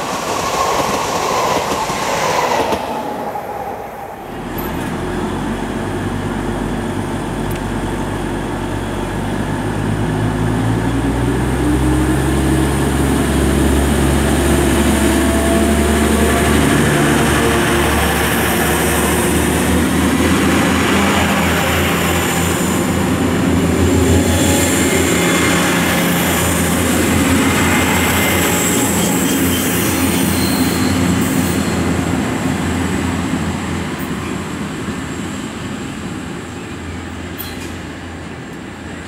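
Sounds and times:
train wheels rolling: 0.0s - 3.7s.

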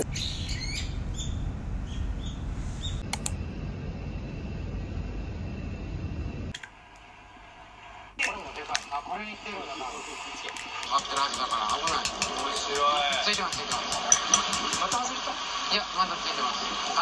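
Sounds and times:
wind rumble on microphone: 0.0s - 6.5s.

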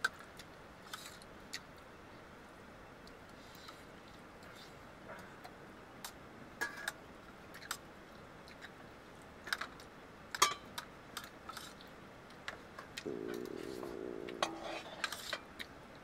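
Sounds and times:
spoons clinking on metal plates: 10.4s - 10.7s.

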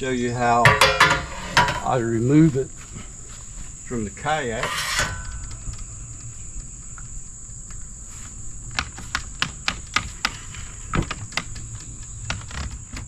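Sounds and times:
insects droning: 0.0s - 13.0s
sharp clicks and knocks: 4.6s - 7.8s.

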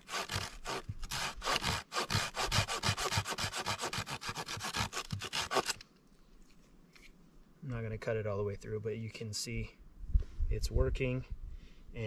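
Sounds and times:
hand saw cutting wood: 0.0s - 5.8s.

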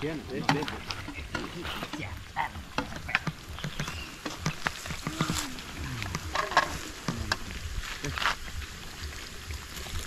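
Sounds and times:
fish frying in hot oil: 0.0s - 10.0s.

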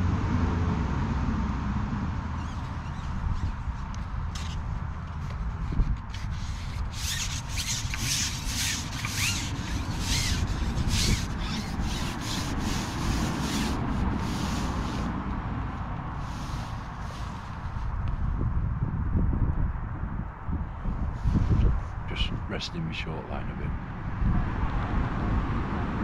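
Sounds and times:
short scraping strokes: 5.2s - 15.2s, 16.2s - 17.9s.

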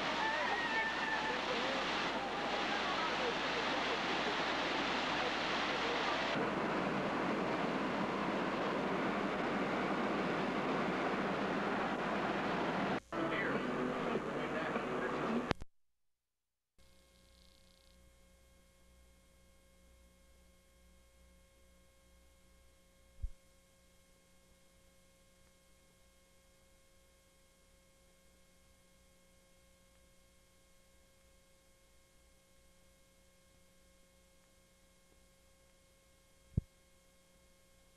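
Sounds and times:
tape hiss: 0.0s - 15.7s, 16.8s - 37.9s
faint electrical hum: 16.8s - 37.9s.

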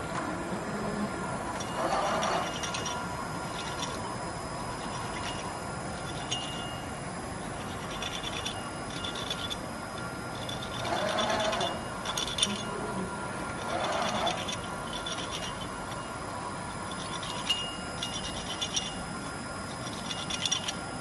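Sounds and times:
machine spindle whine: 0.0s - 21.0s
scratchy metal cutting noise: 1.5s - 6.8s, 7.5s - 16.0s.

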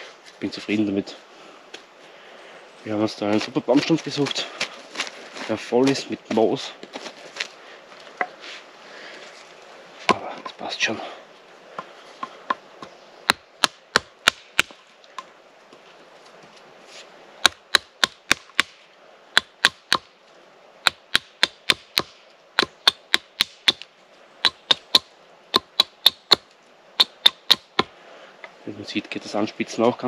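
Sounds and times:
hatchet chopping wooden stick: 10.1s - 10.6s, 12.2s - 15.3s, 17.4s - 20.1s, 20.8s - 27.9s.

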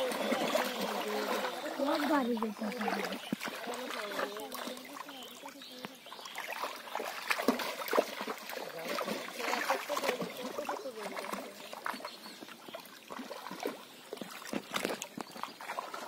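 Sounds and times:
men talking and calling: 0.0s - 7.2s
water splashing and sloshing: 0.0s - 16.0s.

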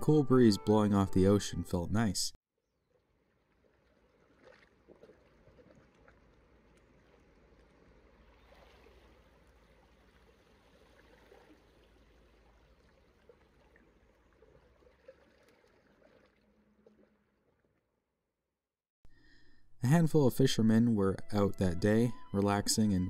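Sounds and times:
small splashes: 2.8s - 17.9s
water lapping against rocks: 2.9s - 17.8s.

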